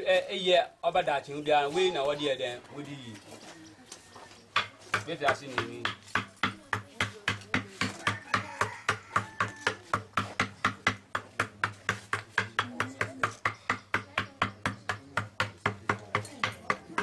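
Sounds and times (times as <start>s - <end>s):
mallet tapping chisel into wood: 4.6s - 17.0s.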